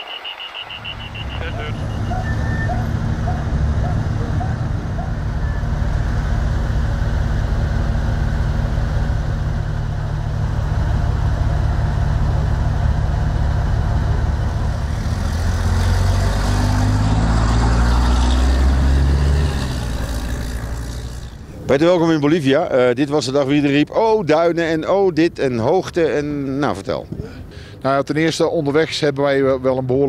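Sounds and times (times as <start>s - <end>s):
diesel truck engines idling: 0.0s - 27.9s
truck engine pulling away: 0.7s - 22.4s.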